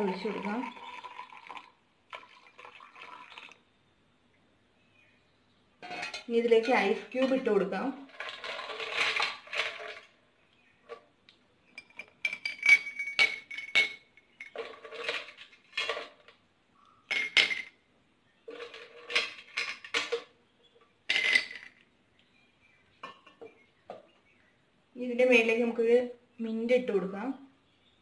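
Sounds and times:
ice cubes clinking in glass: 0.2s - 1.6s, 8.1s - 10.1s, 11.8s - 16.3s, 17.1s - 17.7s, 18.5s - 20.3s, 21.1s - 21.8s.

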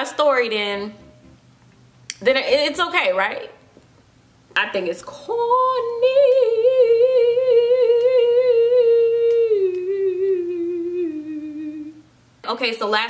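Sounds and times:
woman humming with vibrato: 6.5s - 12.0s.

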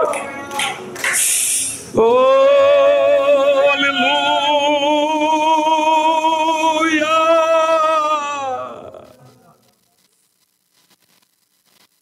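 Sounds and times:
man singing long note with vibrato: 1.9s - 9.0s.

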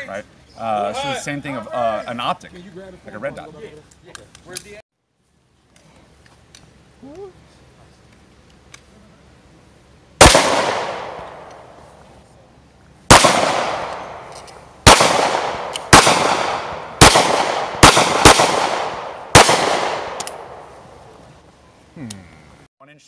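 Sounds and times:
pistol shots with echo: 10.2s - 11.8s, 13.1s - 20.8s.

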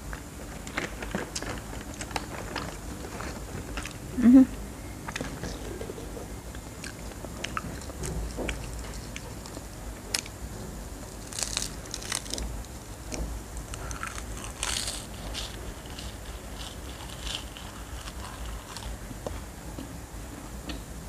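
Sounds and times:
chewing: 5.1s - 10.4s, 13.7s - 19.0s
seaweed snack crackling: 11.1s - 12.5s, 13.6s - 19.0s.

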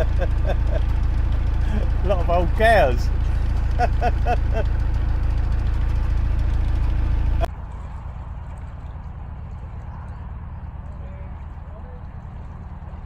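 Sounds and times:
boat engine chugging: 0.0s - 13.0s.

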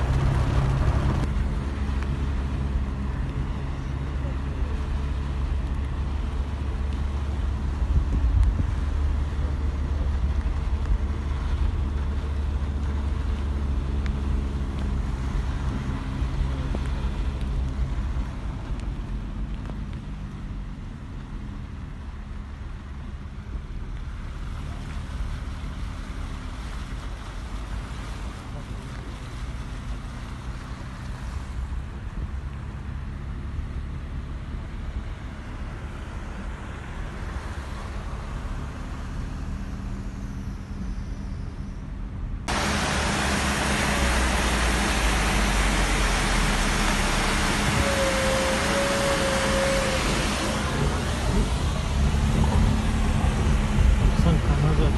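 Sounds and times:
waterfall rushing: 42.5s - 54.9s
wind buffeting microphone: 49.4s - 54.9s.

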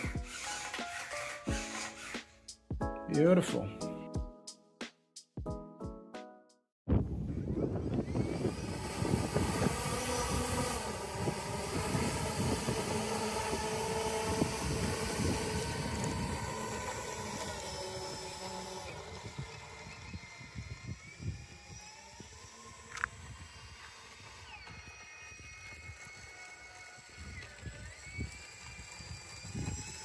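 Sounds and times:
electric motors whining: 0.0s - 2.6s, 7.2s - 30.0s
rough rumble of wheels on asphalt: 7.9s - 30.0s.

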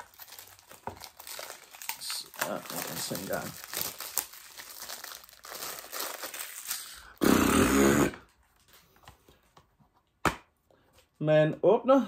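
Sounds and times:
cardboard and plastic case crinkling: 0.0s - 6.7s.

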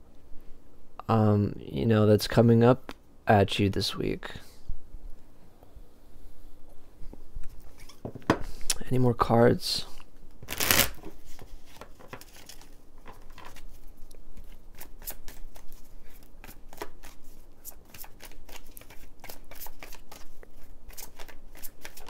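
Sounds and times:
cards being shuffled: 10.4s - 13.8s, 14.4s - 22.0s.

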